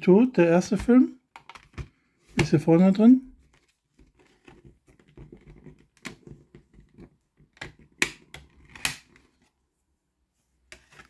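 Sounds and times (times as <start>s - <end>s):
plastic disc tray clicks and snaps: 7.6s - 9.1s.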